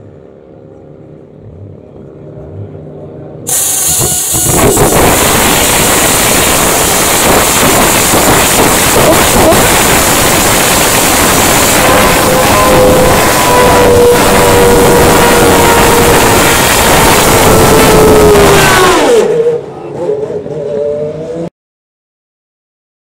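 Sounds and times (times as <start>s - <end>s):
race car engine starting: 3.5s - 21.5s.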